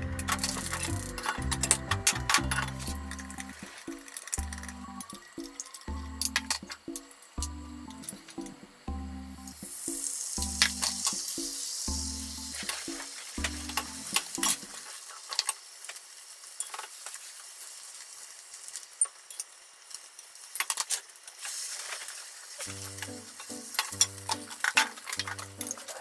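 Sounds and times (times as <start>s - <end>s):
egg sizzling in a pan: 2.8s - 7.4s, 9.6s - 26.0s
utensils clicking and scraping pan: 23.0s - 26.0s.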